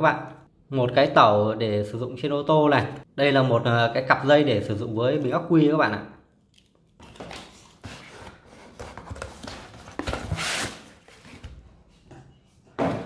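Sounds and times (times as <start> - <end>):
packaging rustling and scraping: 7.0 - 11.5.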